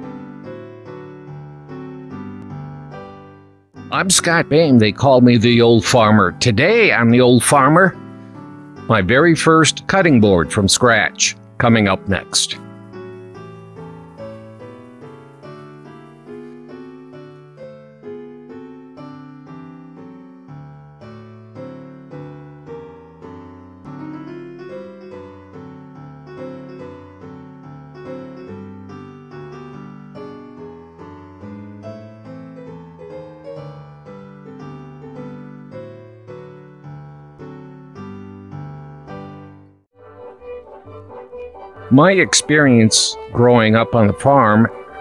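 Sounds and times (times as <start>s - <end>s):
piano melody: 0.0s - 45.0s.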